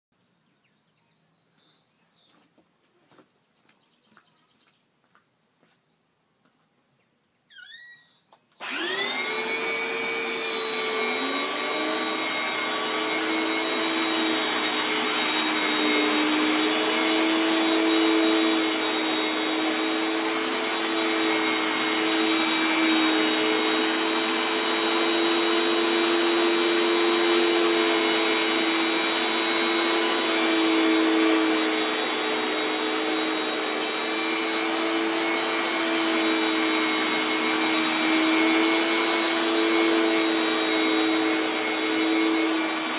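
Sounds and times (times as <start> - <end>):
carpet washer motor whine: 8.6 - 42.9.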